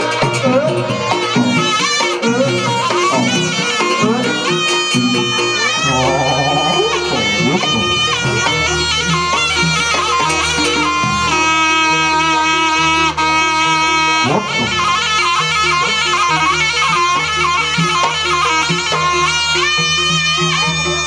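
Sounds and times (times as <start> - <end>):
reedy shawm melody: 0.0 - 21.0
repeating percussion: 0.0 - 21.0
low drone: 5.8 - 8.4.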